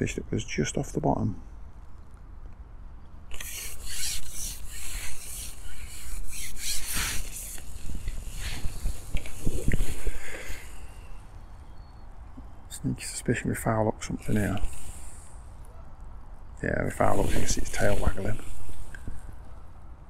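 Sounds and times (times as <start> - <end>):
fishing pole rubbing and rasping: 3.3 - 11.2, 14.2 - 15.4, 16.9 - 19.3.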